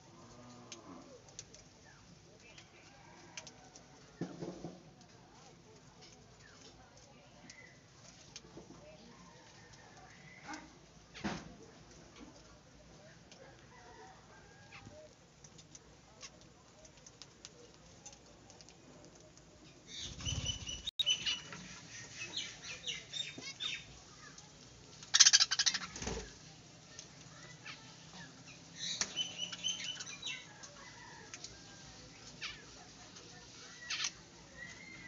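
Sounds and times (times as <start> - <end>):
budgerigars chirping and chattering: 19.9 - 23.9, 25.1 - 26.1
wing flaps: 20.0 - 21.0.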